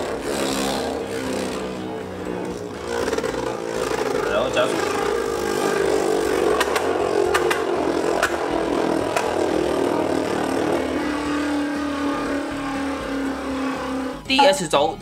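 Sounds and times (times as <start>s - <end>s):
spinning top whirring: 0.1s - 11.1s.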